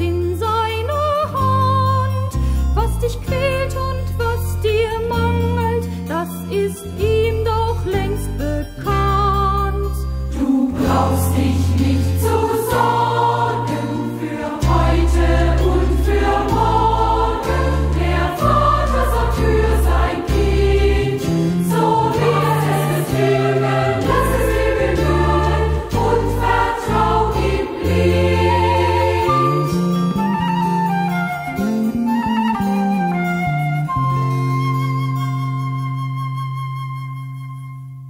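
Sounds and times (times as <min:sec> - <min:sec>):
instrumental accompaniment: 0:03.0 - 0:38.0
choir singing: 0:10.3 - 0:30.3.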